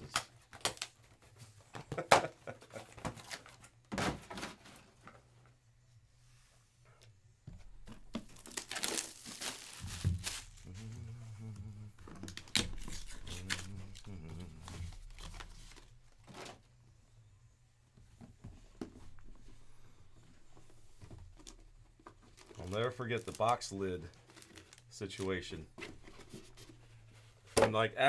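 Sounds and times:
packaging rustling and crinkling: 7.7 - 11.2, 12.0 - 16.6, 20.5 - 27.4.

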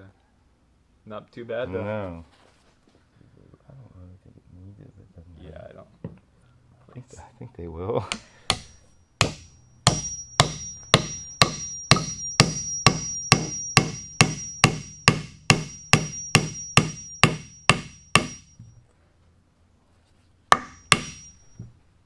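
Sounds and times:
hammer blows on wooden dowel: 8.1 - 18.7.

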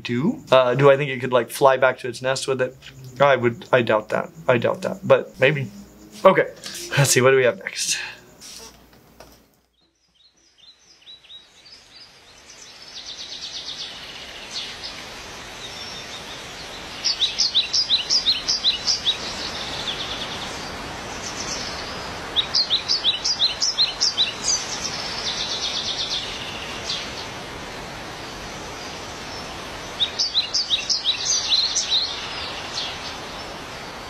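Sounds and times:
outdoor background noise: 0.0 - 34.0
small birds singing and calling: 9.7 - 27.5, 28.1 - 34.0.

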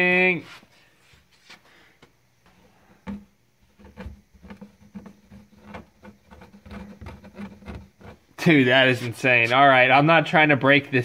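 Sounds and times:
fingers scraping ice off wood: 3.8 - 9.1.

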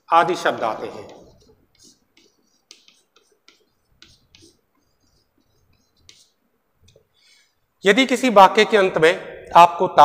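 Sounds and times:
chalk scratching on blackboard: 0.3 - 7.1.

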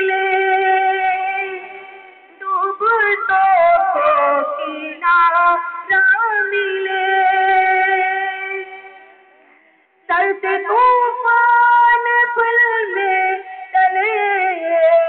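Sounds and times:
high voice singing: 0.0 - 9.4.

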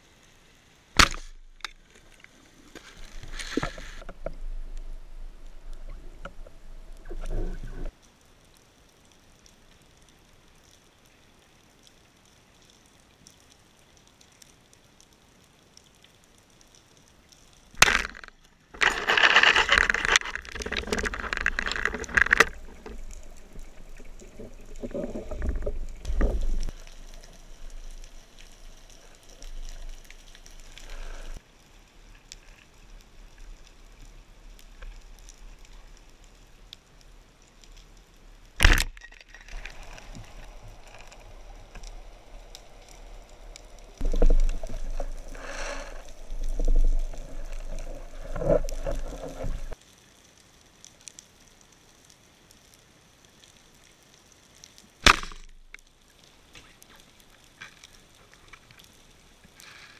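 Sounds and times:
faint underwater clicks: 1.0 - 59.9
low watery rumble: 1.2 - 8.0, 18.2 - 38.6, 39.2 - 49.8.

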